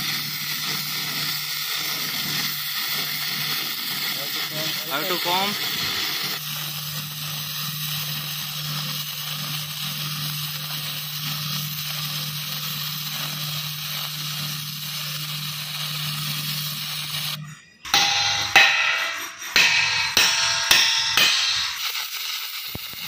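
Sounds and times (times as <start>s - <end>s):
welding arc sizzling and crackling: 0.0s - 23.0s
low hum: 17.6s - 21.8s.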